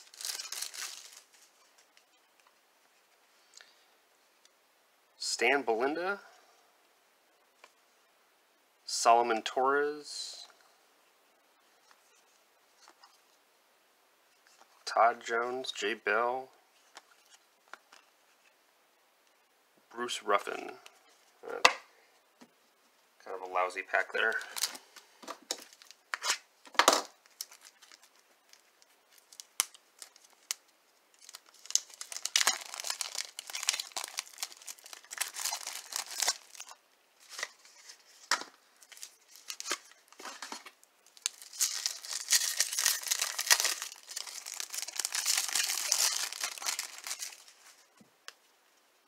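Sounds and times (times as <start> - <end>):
card pack wrapper tearing: 0.0 - 1.5, 27.3 - 30.6, 31.2 - 47.6
wrapper crinkling: 0.0 - 2.1, 24.2 - 24.8, 25.5 - 26.4, 27.2 - 47.9.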